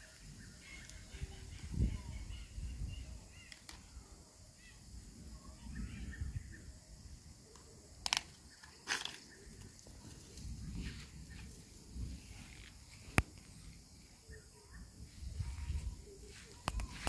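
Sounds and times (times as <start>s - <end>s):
faint bird chirps: 0.0s - 12.6s, 13.6s - 17.0s
sharp clicks: 7.5s - 9.3s.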